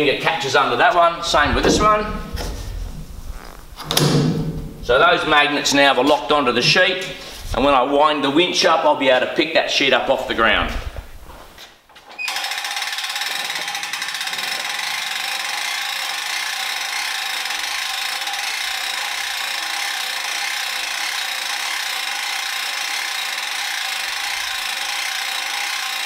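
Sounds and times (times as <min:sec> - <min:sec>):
winch whirring: 0:12.1 - 0:26.0.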